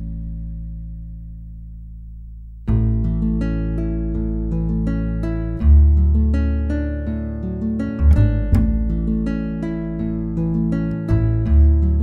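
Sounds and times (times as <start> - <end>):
plucked acoustic guitar: 2.6 - 12.0.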